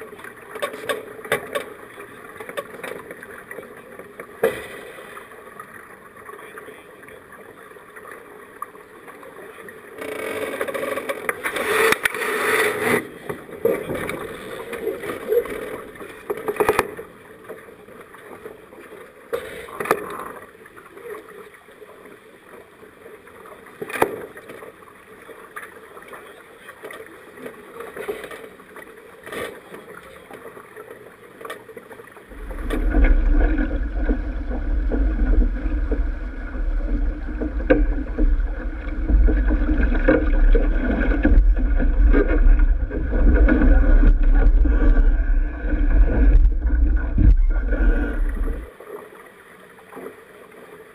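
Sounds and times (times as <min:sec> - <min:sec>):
water rushing along a hull: 0:00.0 - 0:50.9
wind on microphone: 0:32.3 - 0:48.7.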